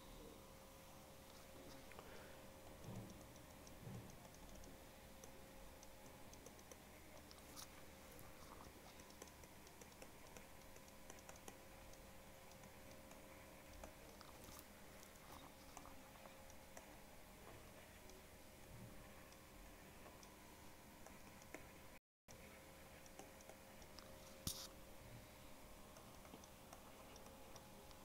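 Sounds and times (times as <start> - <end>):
faint electrical hum: 0.0 - 28.0
stylus tapping while writing: 2.6 - 19.4, 22.9 - 24.7, 25.9 - 28.0.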